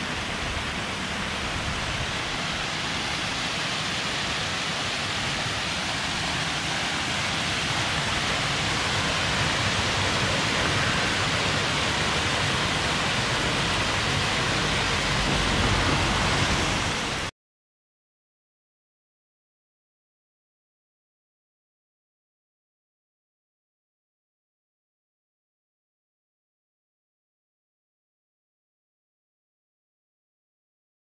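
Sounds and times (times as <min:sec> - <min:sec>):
running water rushing: 0:00.0 - 0:17.3.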